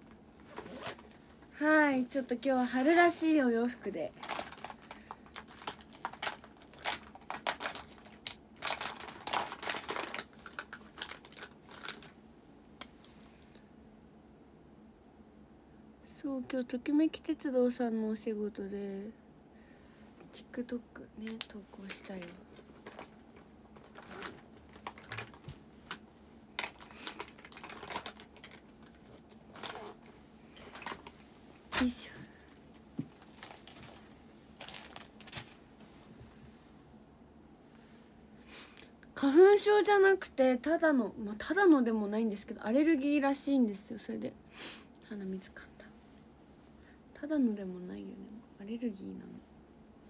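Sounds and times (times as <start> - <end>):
small items rummaged through: 4.1 - 12.2, 21.5 - 26.0, 26.6 - 35.6.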